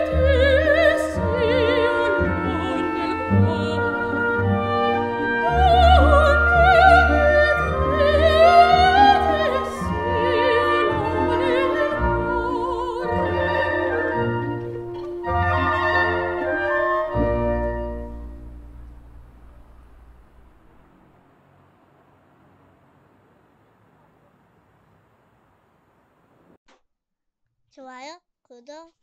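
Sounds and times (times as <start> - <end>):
operatic singing with vibrato: 0.0 - 18.5
orchestral accompaniment: 0.0 - 21.4.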